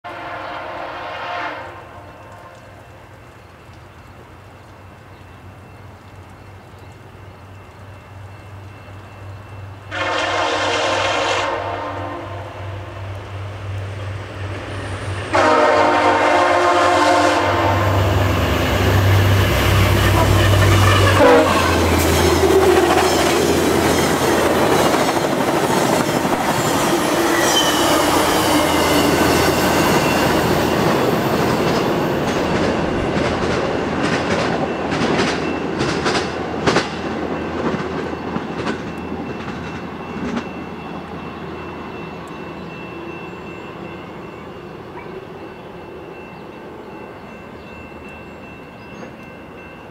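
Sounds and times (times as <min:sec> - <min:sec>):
train horn: 0:00.1 - 0:02.8, 0:09.8 - 0:13.1, 0:15.2 - 0:23.6, 0:26.7 - 0:31.1
diesel locomotive engine droning: 0:00.1 - 0:49.9
train wheels clicking over rail joints: 0:18.7 - 0:40.6.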